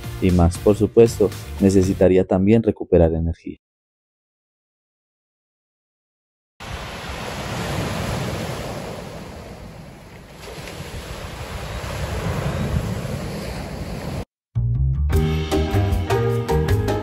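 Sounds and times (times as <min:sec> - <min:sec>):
sea surf washing ashore: 0:06.6 - 0:14.3
wind on microphone: 0:06.7 - 0:14.3.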